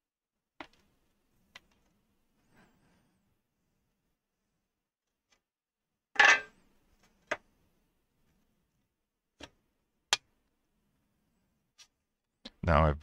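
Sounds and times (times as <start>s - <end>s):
metal plate clattering on workbench: 6.2s - 6.5s.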